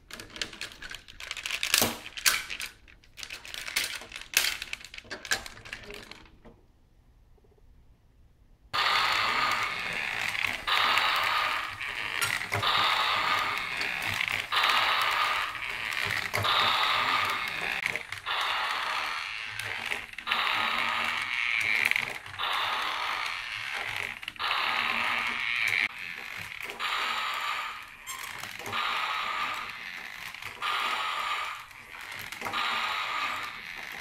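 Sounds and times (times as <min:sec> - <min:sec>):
toy gearbox whirring and clattering: 0:00.0 - 0:06.4, 0:08.8 - 0:34.0
toy footstep sound effects: 0:08.8 - 0:34.0.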